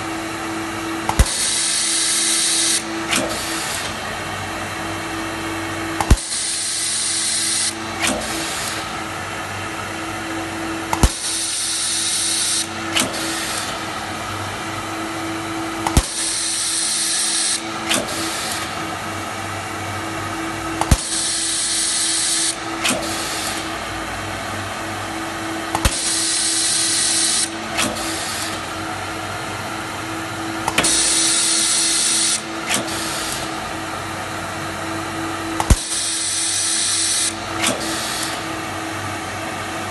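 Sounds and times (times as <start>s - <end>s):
steady machine hum: 0.0s - 39.9s
stud welder crack: 10.9s - 11.6s.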